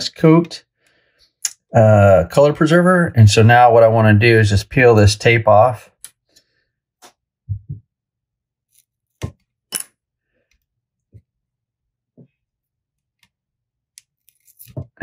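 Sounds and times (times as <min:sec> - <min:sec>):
soft low thumps: 0:07.5 - 0:07.9.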